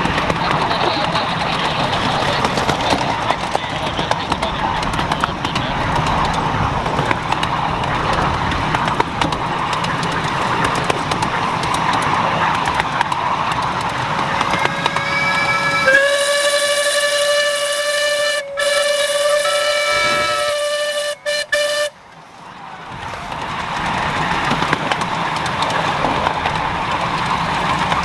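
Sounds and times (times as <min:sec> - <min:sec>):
miniature train running: 0:00.0 - 0:28.0
locomotive whistle blowing: 0:14.5 - 0:22.0.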